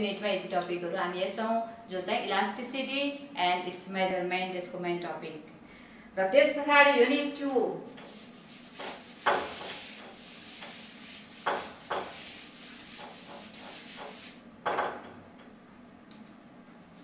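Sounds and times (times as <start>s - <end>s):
eraser rubbing on whiteboard: 7.9s - 14.4s
sharp knocks: 14.6s - 15.2s.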